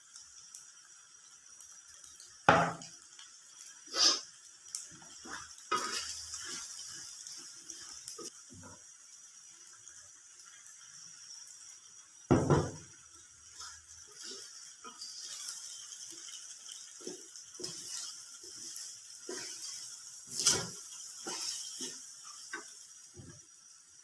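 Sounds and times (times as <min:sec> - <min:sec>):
wooden spatula knocking on wok: 0:02.5 - 0:02.9, 0:12.3 - 0:12.8.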